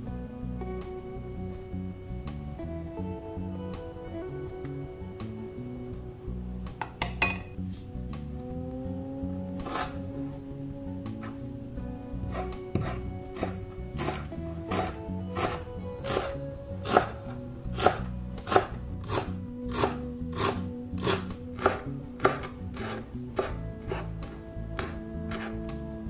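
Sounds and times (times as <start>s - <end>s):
knife chopping on wooden board: 12.3s - 25.6s.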